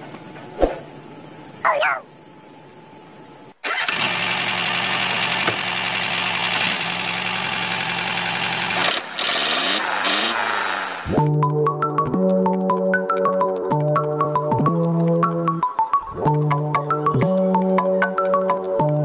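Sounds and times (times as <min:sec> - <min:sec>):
music: 0:11.1 - 0:19.0.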